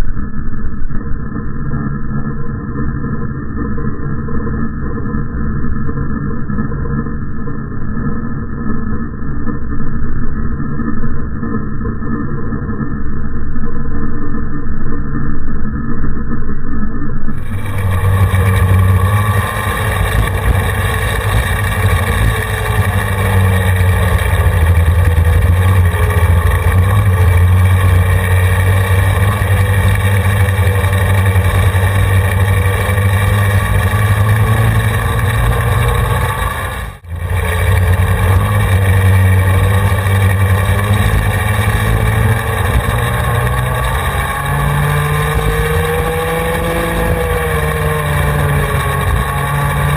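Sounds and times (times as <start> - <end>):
go-kart engines running: 17.3 - 49.9.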